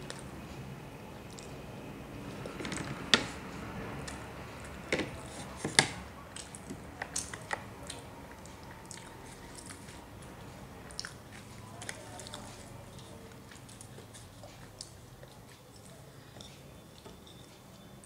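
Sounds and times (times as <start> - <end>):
chewing and mouth sounds: 1.2 - 1.6, 6.3 - 17.8.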